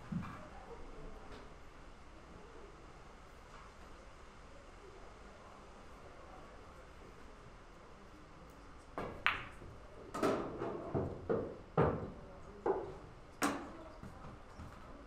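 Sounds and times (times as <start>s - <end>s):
pool balls clacking: 9.0s - 13.8s.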